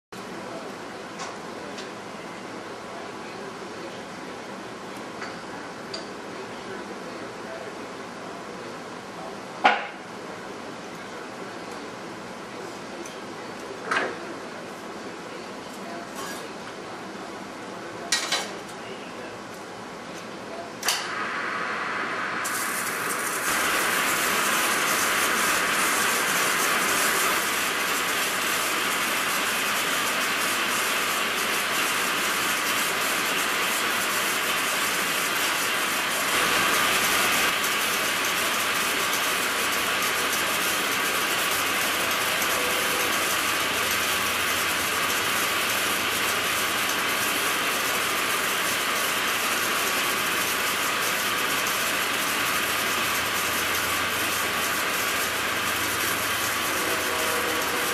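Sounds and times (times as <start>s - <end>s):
metal lathe running: 21.2s - 57.9s
cutting tool hiss and rattle: 22.4s - 57.9s.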